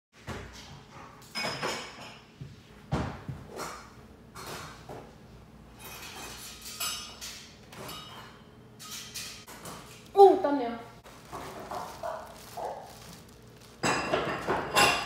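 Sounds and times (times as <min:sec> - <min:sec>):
footsteps shuffling on tile floor: 0:11.0 - 0:15.0.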